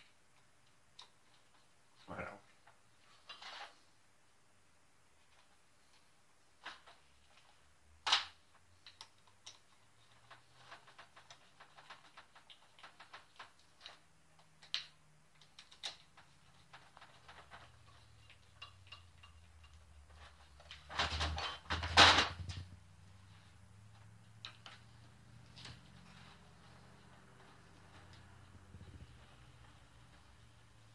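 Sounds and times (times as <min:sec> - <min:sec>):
metal parts clattering on workbench: 0:20.8 - 0:22.6.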